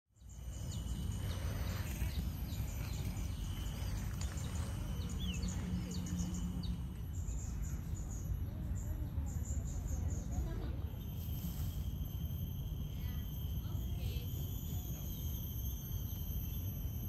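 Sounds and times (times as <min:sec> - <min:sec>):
small birds chirping: 0:00.1 - 0:12.0
short low hum: 0:00.1 - 0:17.0
steady low rumble: 0:00.1 - 0:17.0.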